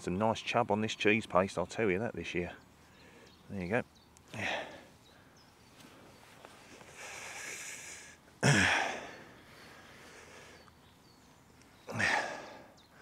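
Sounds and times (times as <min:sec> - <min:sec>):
man breathing in: 0:06.6 - 0:10.7
man sighing: 0:07.0 - 0:09.3, 0:11.9 - 0:12.7.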